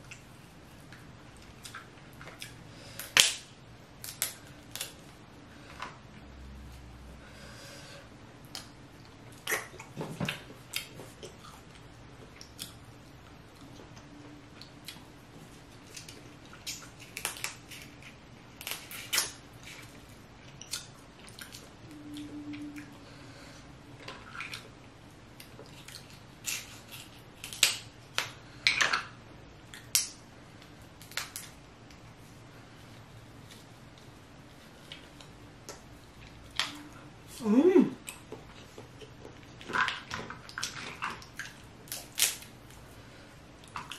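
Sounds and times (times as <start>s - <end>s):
chewing and wet mouth sounds: 0.0s - 3.2s, 8.4s - 23.2s, 23.9s - 32.3s, 38.0s - 43.0s, 43.6s - 43.9s.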